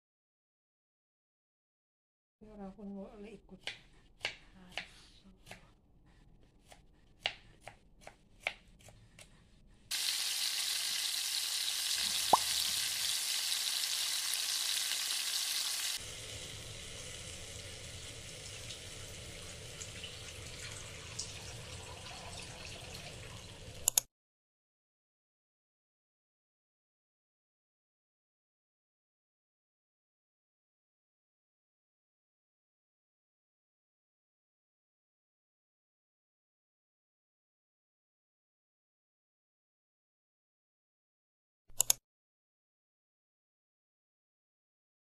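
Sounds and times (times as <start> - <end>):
food sizzling in a frying pan: 9.9 - 23.8.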